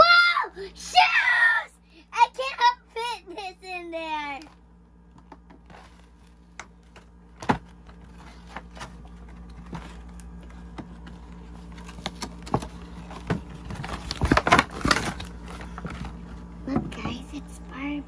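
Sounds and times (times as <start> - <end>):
packaging clicks and rustles: 4.4 - 16.3.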